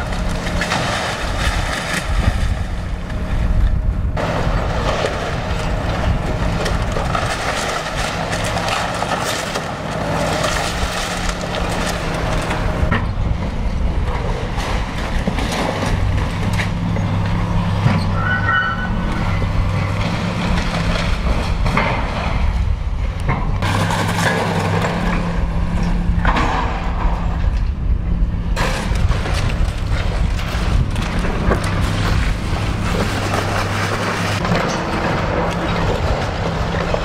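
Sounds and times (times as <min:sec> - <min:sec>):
falling debris: 0:00.0 - 0:02.8, 0:04.2 - 0:13.2, 0:23.6 - 0:25.5, 0:28.6 - 0:37.0
excavator diesel engine running: 0:00.0 - 0:37.0.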